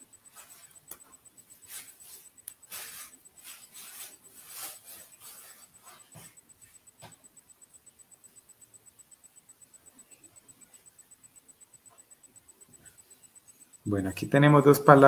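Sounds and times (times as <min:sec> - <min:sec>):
clothing and hands rustling: 0:00.3 - 0:07.2.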